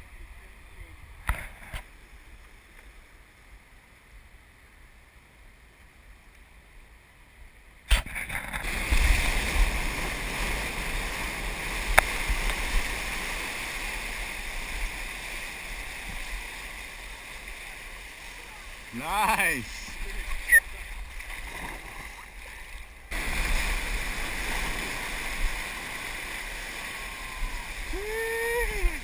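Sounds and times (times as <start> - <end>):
rush of water and spray: 7.8 - 29.0
surf hissing: 8.6 - 29.0.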